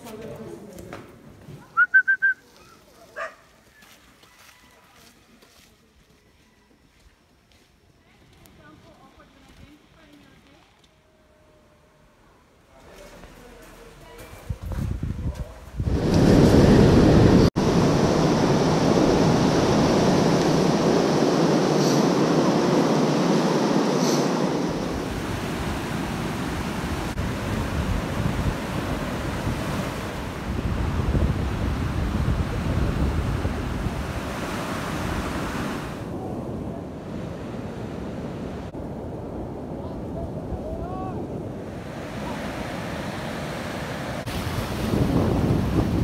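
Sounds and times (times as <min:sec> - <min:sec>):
wind: 0:00.0 - 0:46.0
surf rushing: 0:15.8 - 0:46.0.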